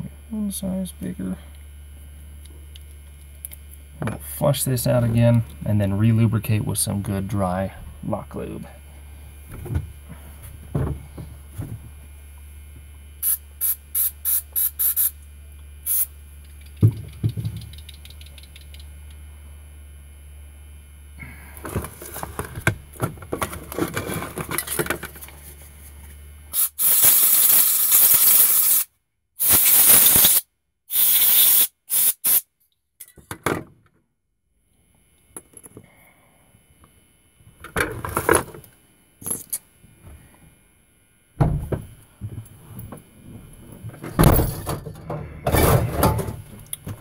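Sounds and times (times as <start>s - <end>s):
aerosol spray bursts: 13.2s - 15.2s, 15.8s - 16.1s, 26.6s - 32.4s.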